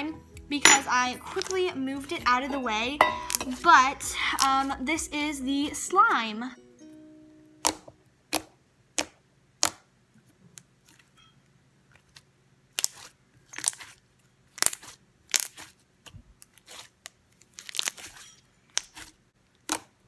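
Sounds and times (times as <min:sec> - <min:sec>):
slime squelching by hand: 0:12.0 - 0:20.0.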